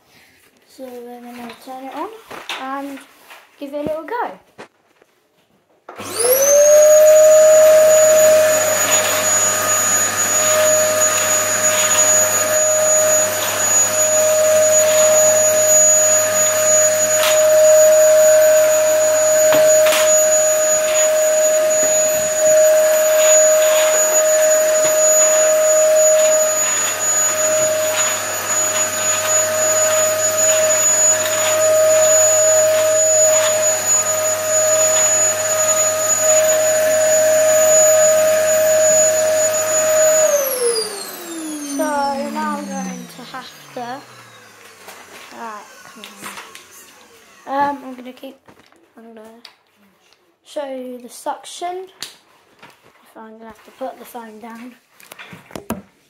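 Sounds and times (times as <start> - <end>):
vacuum head on tiled floor: 5.8 - 48.8
vacuum cleaner motor whine: 5.9 - 48.1.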